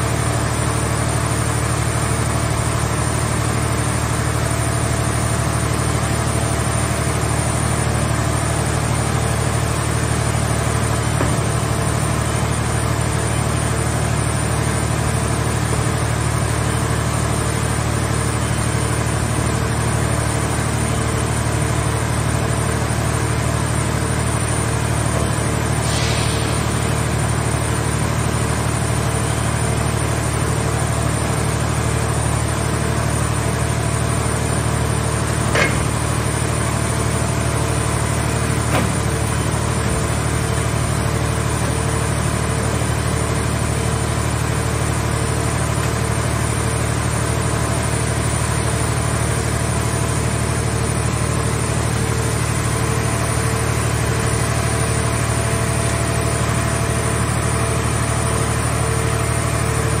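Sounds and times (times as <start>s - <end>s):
low machine hum: 5.9s - 60.0s
metal clanks: 35.5s - 36.1s.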